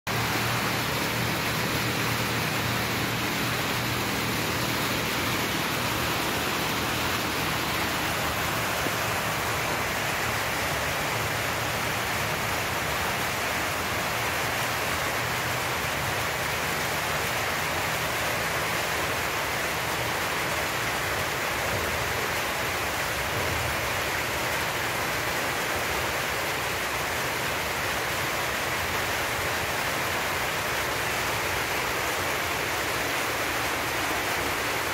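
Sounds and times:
steady rushing noise: 0.1s - 19.8s.

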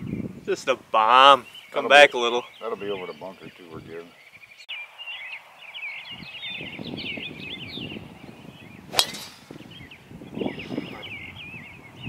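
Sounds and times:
birds chirping: 0.0s - 12.0s
golf club striking ball: 8.9s - 9.7s.

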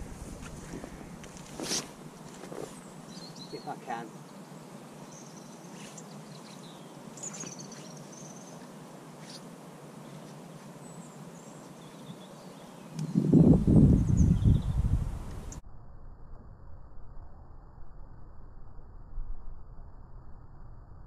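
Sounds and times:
small birds chirping: 2.6s - 15.6s
wind buffeting microphone: 13.0s - 15.6s.

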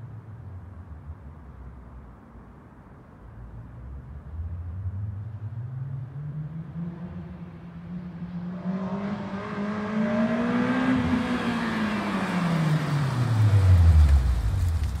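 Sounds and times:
sports car accelerating: 5.6s - 15.0s.

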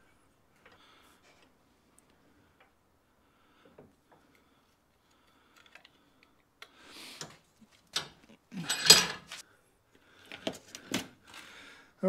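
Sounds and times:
small parts clicking and tapping: 5.0s - 9.4s
parts clattering: 7.2s - 9.4s.

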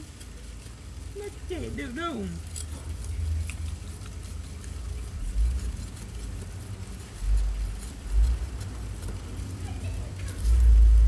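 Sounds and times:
faint clicks and scrapes: 0.0s - 11.0s.

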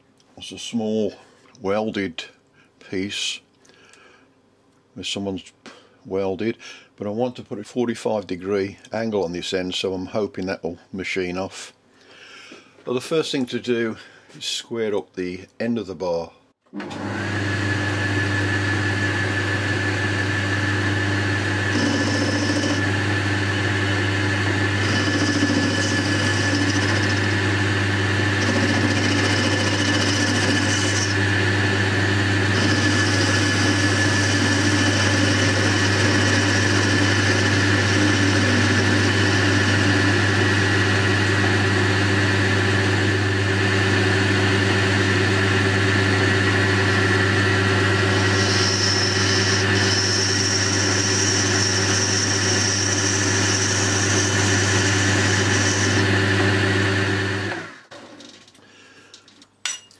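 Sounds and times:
lathe running: 16.8s - 57.8s.

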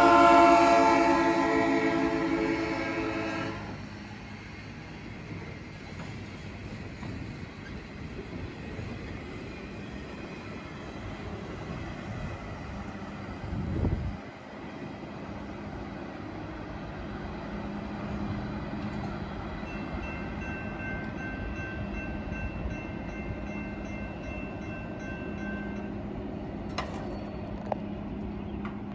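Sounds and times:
railroad crossing bell ringing: 0.0s - 5.3s, 18.9s - 28.2s
train rolling on tracks: 0.0s - 28.9s.

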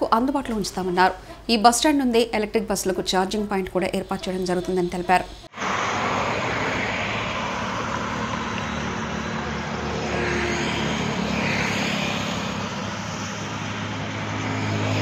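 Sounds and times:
highway traffic noise: 3.4s - 15.0s
low engine hum: 5.5s - 15.0s
vehicle passing: 5.5s - 15.0s.

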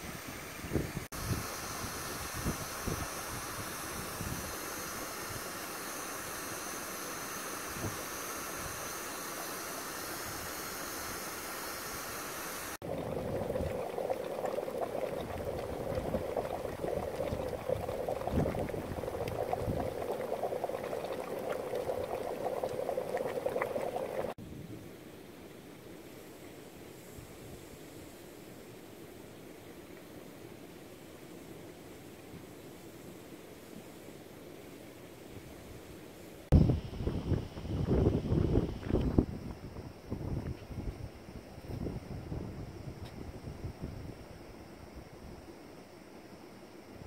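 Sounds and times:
steam vent hissing: 0.0s - 24.4s
mud pool bubbling and popping: 12.8s - 24.4s.

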